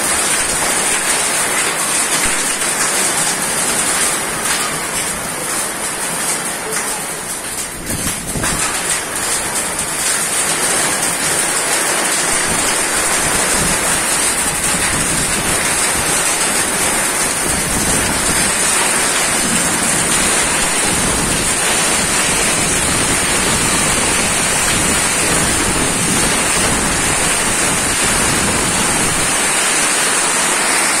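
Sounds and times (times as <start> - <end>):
heavy rain pouring: 0.0 - 31.0
strong gusting wind: 7.7 - 8.8, 12.4 - 29.9.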